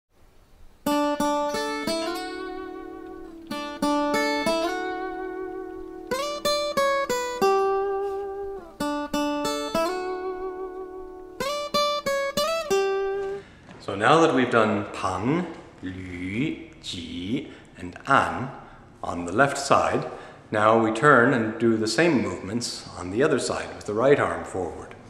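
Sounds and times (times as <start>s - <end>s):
plucked string instrument: 0.8s - 13.4s.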